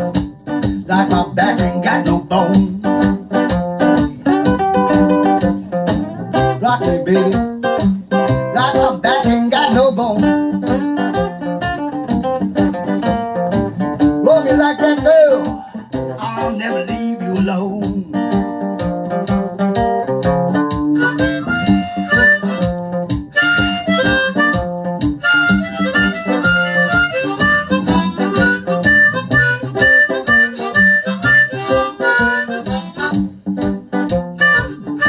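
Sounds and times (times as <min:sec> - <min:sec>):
acoustic guitar rhythm: 0:00.0 - 0:35.0
steady drum beat: 0:00.0 - 0:35.0
blues harmonica playing: 0:02.9 - 0:08.8, 0:19.8 - 0:35.0.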